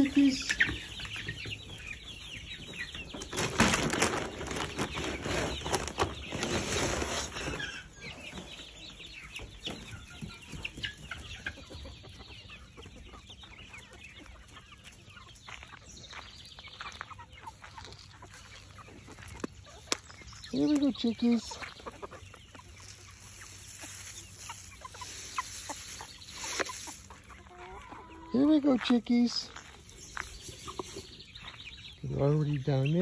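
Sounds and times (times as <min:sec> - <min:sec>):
chickens clucking: 0:00.0 - 0:33.0
scuffling and rustling: 0:03.1 - 0:07.8, 0:22.6 - 0:27.8.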